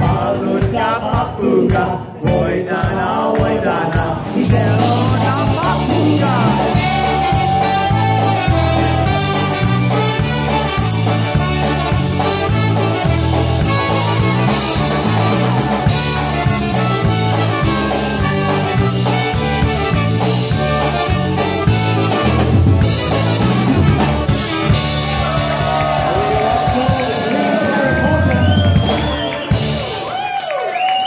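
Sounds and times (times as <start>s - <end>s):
drum kit: 0.0s - 31.0s
bouncing bass: 4.4s - 27.2s
piano accordion: 4.9s - 25.2s
trumpets: 5.0s - 30.2s.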